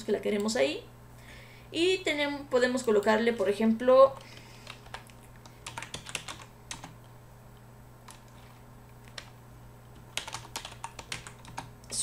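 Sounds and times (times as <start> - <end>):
low steady hum: 0.0 - 12.0
computer keyboard keystrokes: 4.2 - 7.0, 9.0 - 9.3, 9.9 - 12.0.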